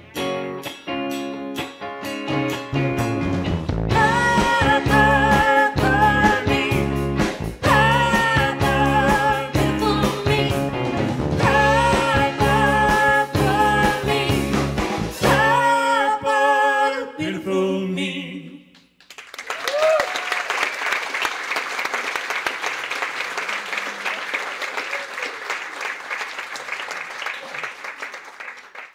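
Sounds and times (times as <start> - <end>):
live band piano and drums: 0.0 - 15.8
woman singing: 3.9 - 7.0, 7.6 - 10.7, 11.4 - 14.6, 15.2 - 18.7
audience applauding: 19.0 - 28.9.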